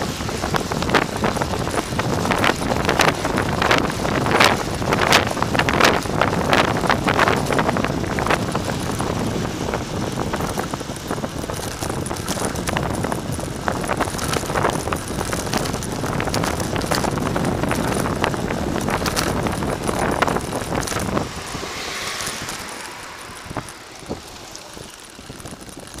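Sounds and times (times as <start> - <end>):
bicycle knocking and rattling: 0.0 - 26.0
wind buffeting microphone: 0.0 - 26.0.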